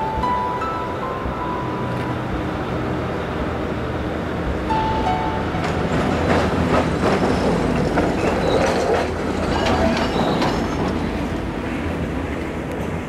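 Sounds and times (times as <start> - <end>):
diesel locomotive engine rumble: 0.0 - 13.0
wheels squealing on rails: 0.0 - 13.0
wheels clicking over rail joints: 5.5 - 13.0.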